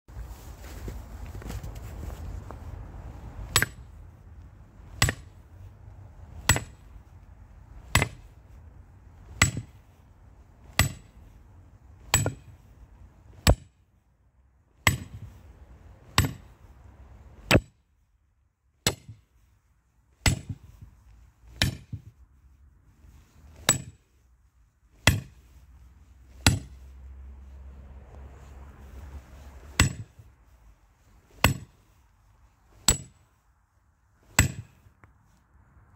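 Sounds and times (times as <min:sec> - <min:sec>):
sledgehammer clanking on steel wedge: 0:03.5 - 0:04.0, 0:04.9 - 0:05.4, 0:06.3 - 0:06.9, 0:07.8 - 0:08.4, 0:09.2 - 0:09.9, 0:10.6 - 0:11.2, 0:12.0 - 0:12.7, 0:13.4 - 0:13.8, 0:14.8 - 0:15.4, 0:16.0 - 0:16.6, 0:17.4 - 0:17.8, 0:18.8 - 0:19.3, 0:20.2 - 0:20.9, 0:21.5 - 0:22.1, 0:23.6 - 0:24.1, 0:25.0 - 0:25.5, 0:26.4 - 0:26.8, 0:29.7 - 0:30.2, 0:31.4 - 0:31.8, 0:32.8 - 0:33.3, 0:34.2 - 0:34.9.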